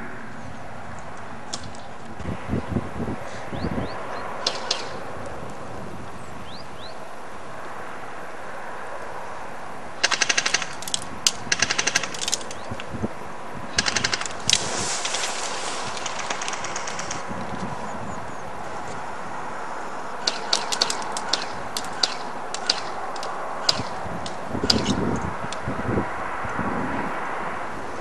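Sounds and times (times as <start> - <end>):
airsoft guns firing bursts: 10.0 - 10.9, 11.5 - 12.4, 13.8 - 14.5, 16.0 - 17.2, 20.2 - 23.0
steady hiss: 14.3 - 17.8.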